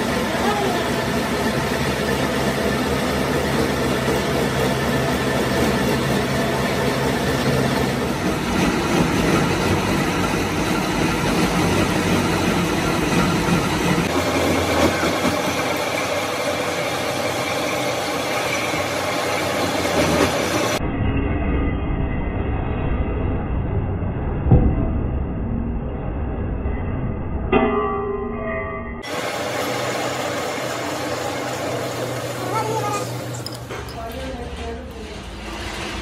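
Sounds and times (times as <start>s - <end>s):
metal lathe cutting steel: 0.0s - 20.8s, 29.0s - 36.0s.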